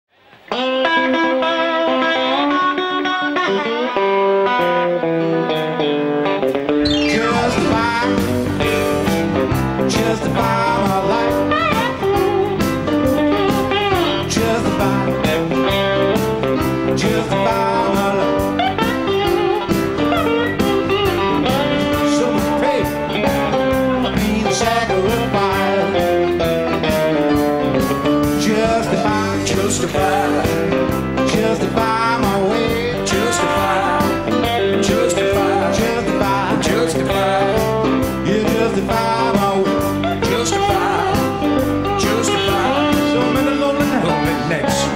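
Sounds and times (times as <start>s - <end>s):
blues-rock band playing: 0.2s - 44.9s
electric guitar bent notes: 0.2s - 44.9s.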